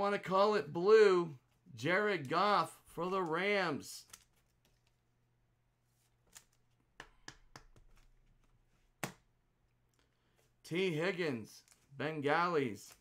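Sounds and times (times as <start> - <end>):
trading cards clicking and rustling: 3.1 - 5.0.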